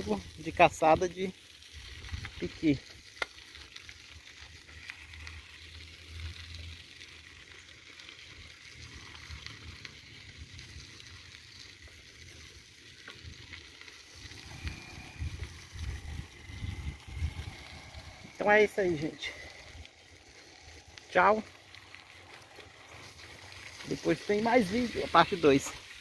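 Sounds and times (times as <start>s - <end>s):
wind rumbling on microphone: 1.7s - 2.7s, 14.2s - 20.3s
steady hiss: 13.6s - 26.0s.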